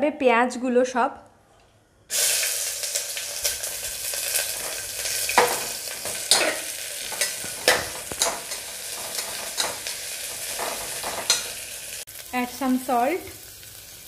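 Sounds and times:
onions sizzling in oil: 0:02.1 - 0:14.0
metal spatula scraping pot: 0:04.2 - 0:11.6.

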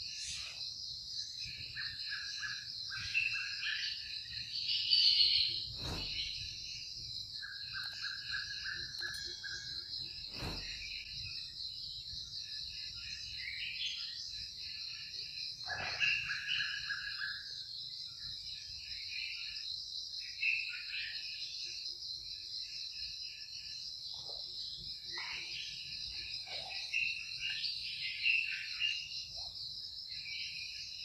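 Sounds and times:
high-pitched insect chorus: 0:00.0 - 0:31.0
short chirping calls: 0:01.3 - 0:11.6.

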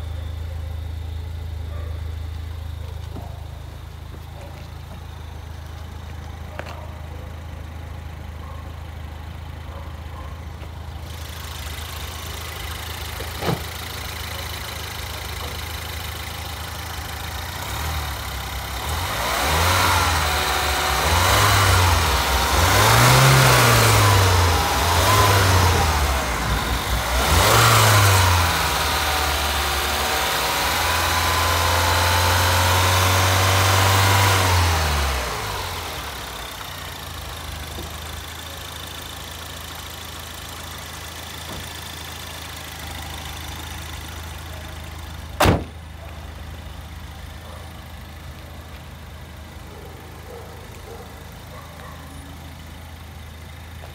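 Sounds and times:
car engine idling and revving: 0:00.0 - 0:53.9
car bonnet shutting bang: 0:45.4 - 0:45.8.

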